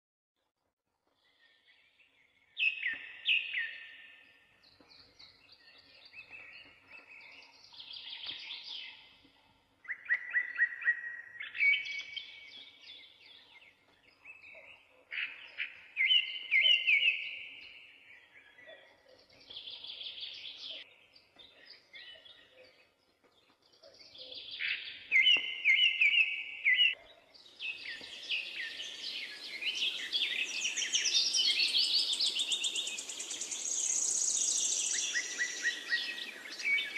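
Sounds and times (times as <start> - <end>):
songbird whistling: 9.9 - 12.2, 27.8 - 36.9.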